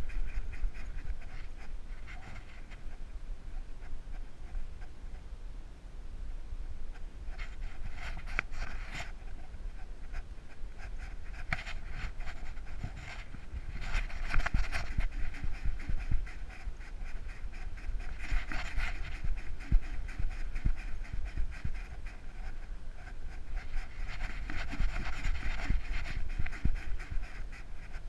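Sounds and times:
dog panting: 11.0 - 28.0.

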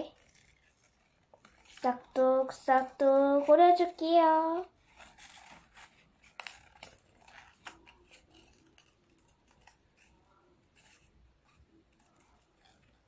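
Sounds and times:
scissors snipping paper: 4.8 - 13.0.

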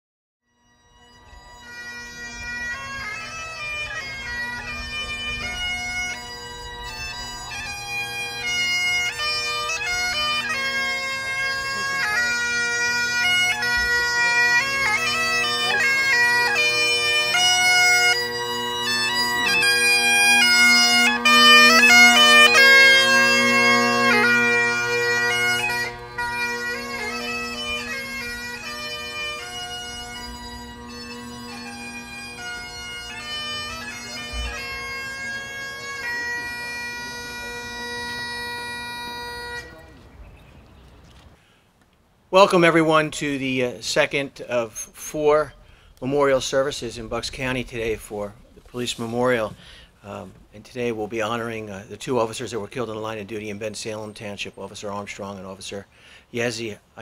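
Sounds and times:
bagpipes playing slow tune: 0.5 - 40.1.

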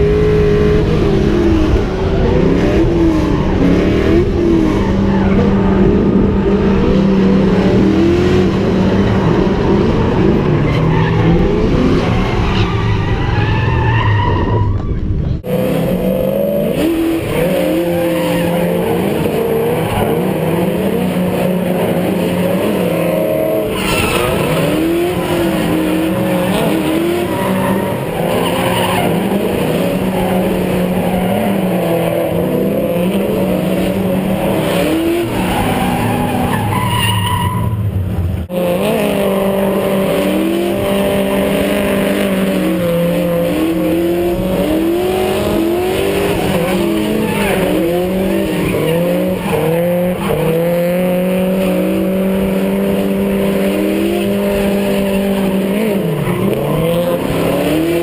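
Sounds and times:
car engine revving: 0.0 - 58.0
tires skidding and squealing: 0.0 - 58.0.

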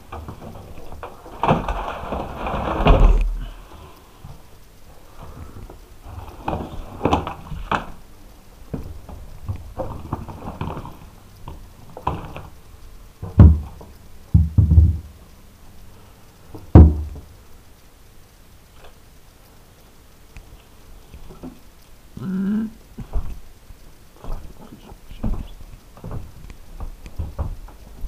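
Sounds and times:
heavy thuds: 13.2 - 15.2.

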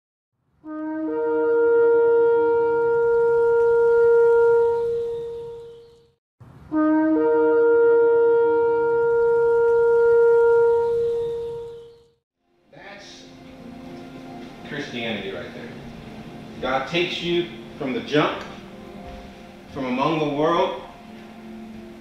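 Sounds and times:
ram's horn blasts: 0.7 - 5.9, 6.7 - 12.0.

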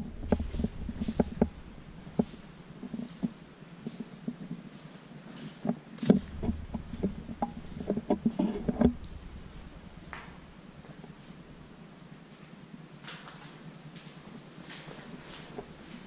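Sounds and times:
heavy low thump: 0.0 - 2.8, 6.2 - 11.8
footsteps and scuffs on floor: 13.1 - 16.0.

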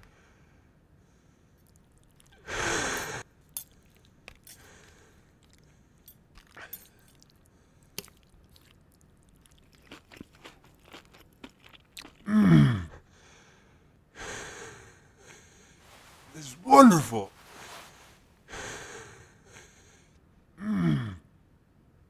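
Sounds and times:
cutlery clicking and scraping: 3.6 - 4.6.

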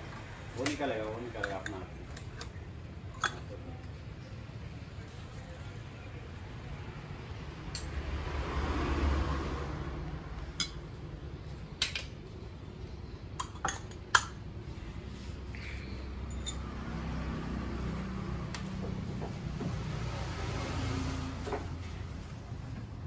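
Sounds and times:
steel dishes clinking: 16.2 - 16.7.

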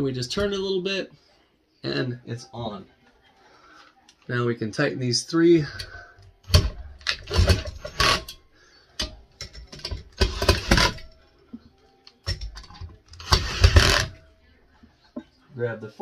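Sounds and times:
cordless drill driving screws: 13.2 - 14.1.

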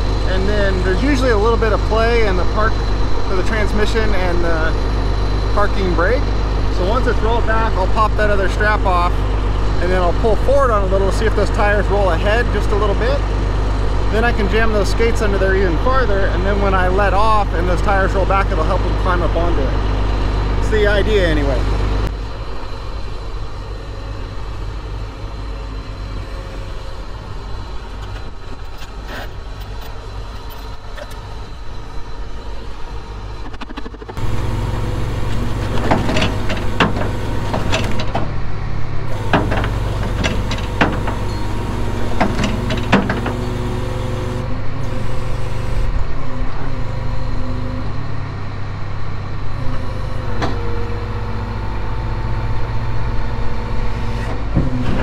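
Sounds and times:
truck engine running: 0.0 - 55.0
metal clanks and knocks: 35.3 - 38.4, 39.1 - 44.4.

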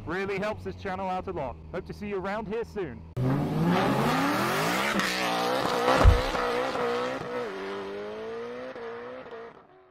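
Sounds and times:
race car engine revving: 3.2 - 9.8
deep boom: 6.0 - 6.5.

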